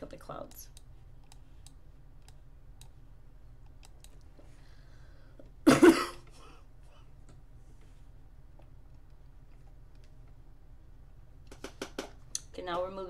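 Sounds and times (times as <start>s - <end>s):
computer mouse clicks: 0.5s - 3.0s, 3.6s - 4.3s
person coughing: 5.6s - 6.6s.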